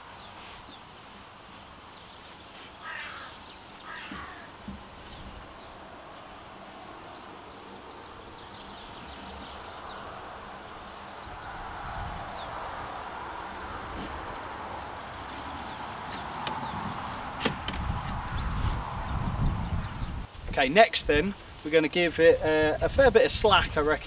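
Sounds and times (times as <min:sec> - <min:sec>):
small birds chirping: 0:00.0 - 0:22.1
crow cawing: 0:02.8 - 0:04.6.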